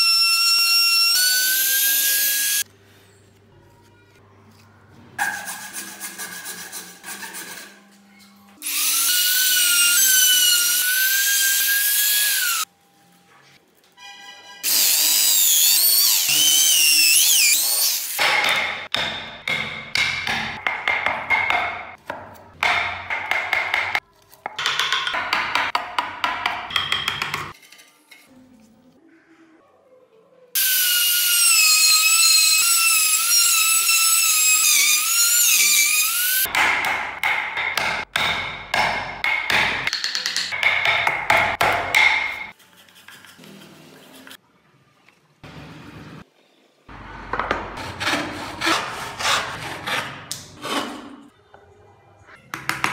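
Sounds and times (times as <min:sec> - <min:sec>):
chisel cutting wood: 0:47.3 - 0:51.1.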